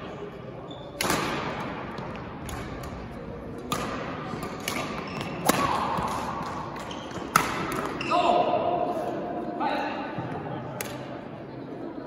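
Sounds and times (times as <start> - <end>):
rackets hitting shuttlecock: 0.9 - 8.1.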